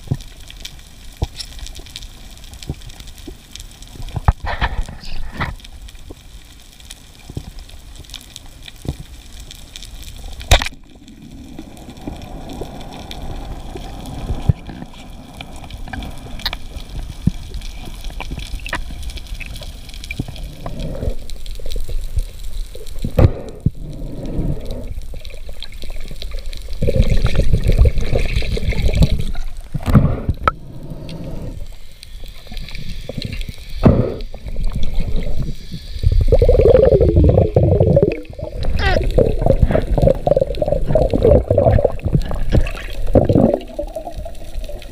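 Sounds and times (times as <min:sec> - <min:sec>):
underwater rushing water: 0:07.0 - 0:44.9.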